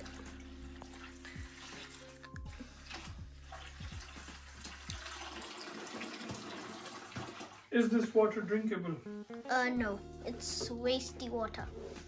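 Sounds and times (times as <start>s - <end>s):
water splashing into bucket: 0.0s - 7.7s.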